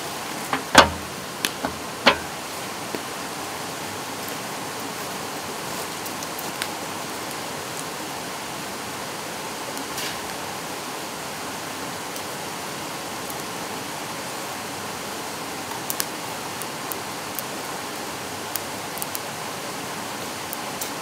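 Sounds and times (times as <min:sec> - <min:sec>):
fire crackling: 0:00.0 - 0:03.0, 0:15.7 - 0:19.6.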